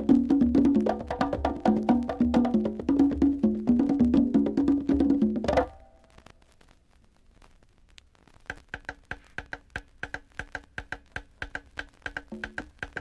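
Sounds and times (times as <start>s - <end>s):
conga drum tones: 0.0s - 6.1s, 8.5s - 13.0s
sharp high percussion clicks: 8.5s - 13.0s.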